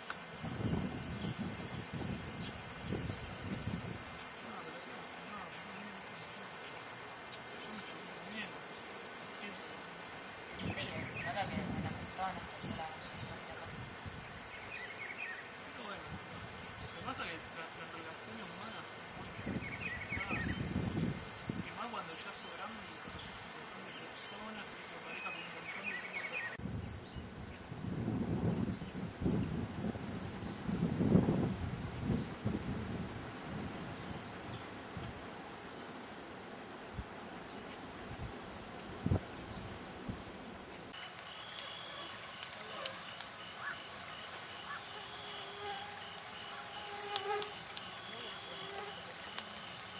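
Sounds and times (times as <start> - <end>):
crickets chirping: 0.0 - 49.9
insects droning: 0.0 - 49.9
wind rumbling on microphone: 0.4 - 4.0, 10.6 - 14.4, 19.3 - 21.7, 26.6 - 35.2, 38.0 - 40.3.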